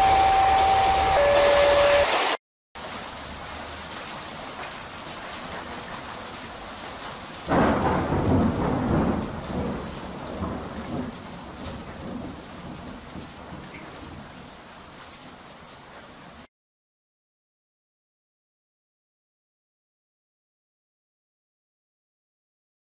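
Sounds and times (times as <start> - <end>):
railroad crossing warning tones: 0.0 - 2.4
heavy rain: 0.0 - 16.5
thunder rumbling: 7.5 - 14.4.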